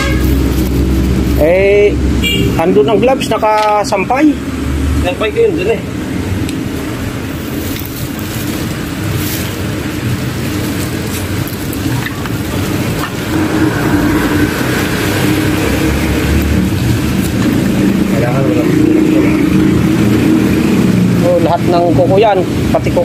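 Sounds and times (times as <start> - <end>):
steady low rumble: 0.0 - 21.6
plastic garbage bag rustling: 7.3 - 13.5.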